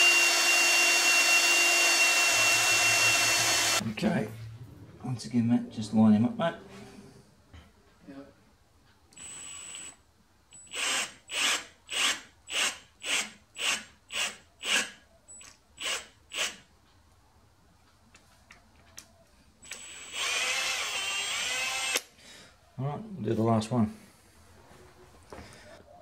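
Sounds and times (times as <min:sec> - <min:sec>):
cordless drill boring into metal: 0:00.0 - 0:03.8, 0:10.6 - 0:14.9, 0:19.6 - 0:22.1.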